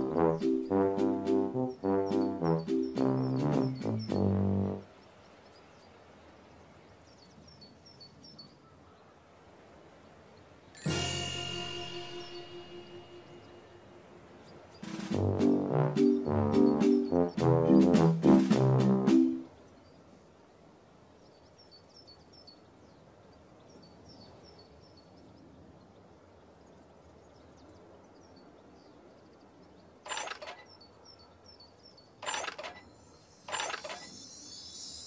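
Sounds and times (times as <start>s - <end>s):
faint birdsong: 0.0s - 35.0s
high glittering shimmer: 10.8s - 14.0s, 32.8s - 35.0s
short bursts: 30.1s - 30.7s, 32.2s - 35.0s.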